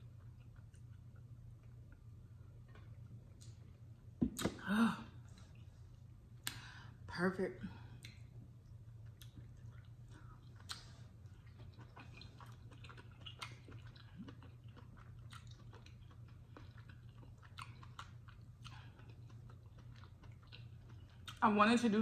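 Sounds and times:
person chewing wetly: 0:00.0 - 0:03.7, 0:08.0 - 0:21.4
steady low hum: 0:00.0 - 0:22.0.

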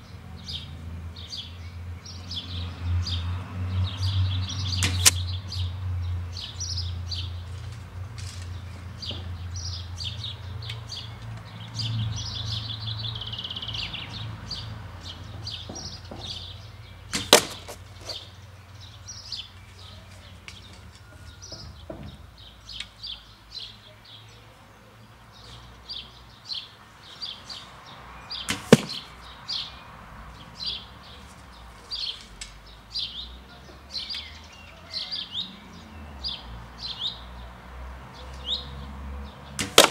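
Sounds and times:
songbirds chirping: 0:00.0 - 0:39.9
arrows hitting card targets: 0:04.7 - 0:05.2, 0:17.1 - 0:18.2, 0:28.5 - 0:29.1, 0:39.6 - 0:39.9.

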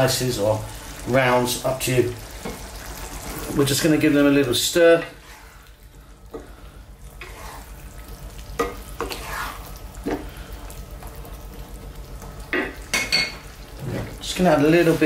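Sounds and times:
faint sizzle: 0:00.0 - 0:15.0
spatula knocking and scraping pan: 0:08.6 - 0:10.2.

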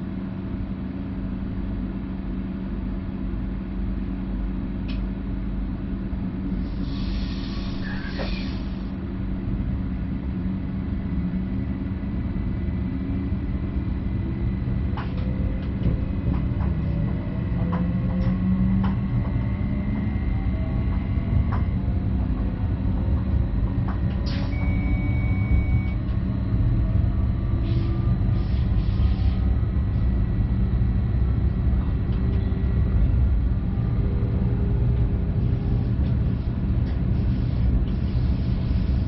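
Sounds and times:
train low rumble: 0:00.0 - 0:39.0
air hiss: 0:06.6 - 0:08.8.

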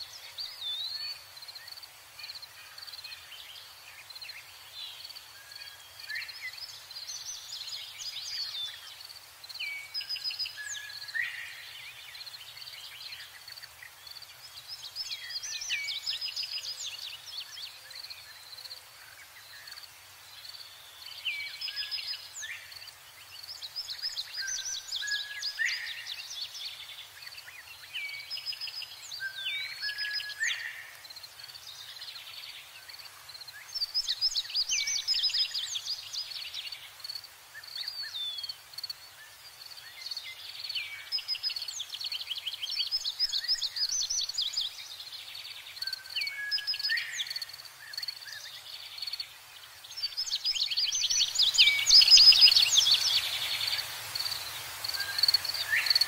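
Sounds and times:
bird chirps trills and whistles: 0:33.6 - 0:36.8, 0:39.8 - 0:49.2, 0:49.9 - 0:56.0.

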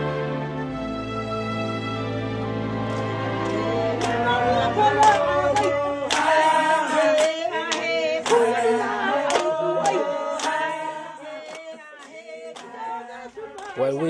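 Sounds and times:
group of voices singing: 0:02.8 - 0:14.0
hand claps keeping time: 0:02.8 - 0:14.0.

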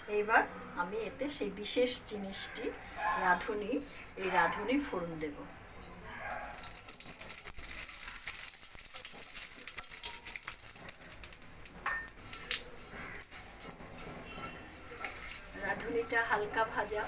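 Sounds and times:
seeds sizzling in hot oil: 0:06.5 - 0:17.0
wooden spatula stirring in wok: 0:06.6 - 0:17.0.

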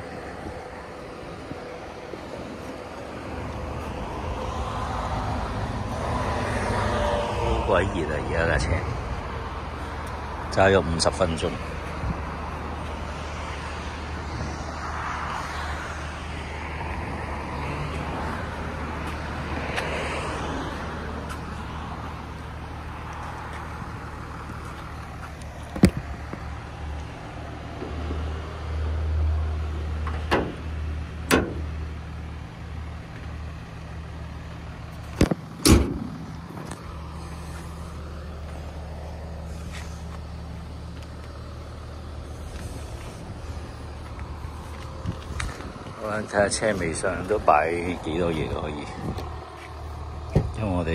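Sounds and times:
car engine idling: 0:00.0 - 0:50.9
car bonnet slamming shut: 0:30.2 - 0:30.6, 0:31.3 - 0:31.7, 0:35.2 - 0:36.1.

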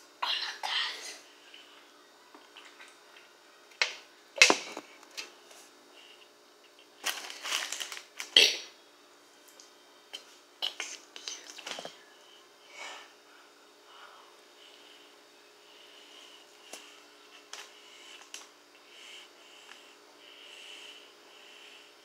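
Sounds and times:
paper bag and wrapper crinkling: 0:07.0 - 0:08.4.

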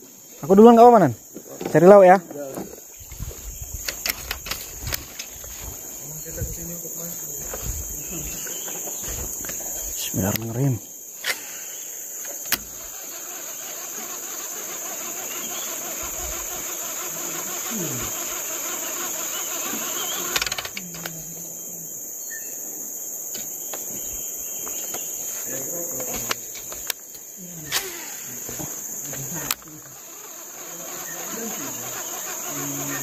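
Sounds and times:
insects droning: 0:00.0 - 0:33.0
sharp clicks: 0:03.8 - 0:05.3, 0:10.2 - 0:10.6, 0:12.2 - 0:21.2, 0:29.1 - 0:33.0.

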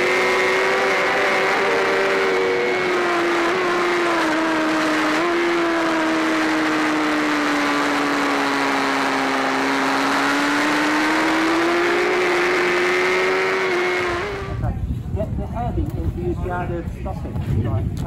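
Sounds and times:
motorcycle engine at speed: 0:00.0 - 0:14.8
wind rush: 0:14.0 - 0:18.0.

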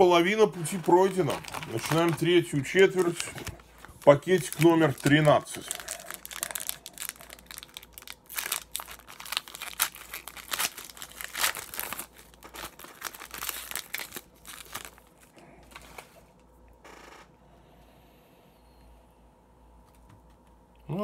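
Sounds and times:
foil wrapper crinkling and tearing: 0:00.0 - 0:16.1.

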